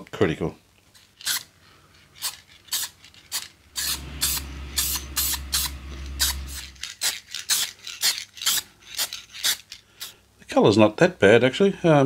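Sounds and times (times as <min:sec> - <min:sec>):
aerosol spray can hissing: 0:02.2 - 0:10.1.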